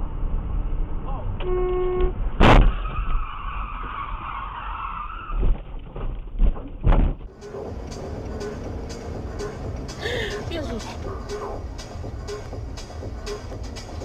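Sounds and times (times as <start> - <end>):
road noise: 0.0 - 14.0
car tyres squealing: 1.4 - 5.9
loud crash bang: 2.4 - 3.3.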